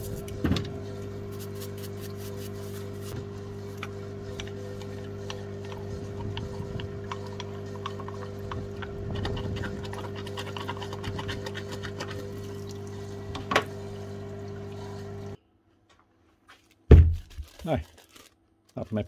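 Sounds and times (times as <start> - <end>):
brush scrubbing metal: 0.0 - 0.3, 1.2 - 13.1
pump humming: 0.0 - 15.4
small clicks and scrapes: 3.8 - 12.3.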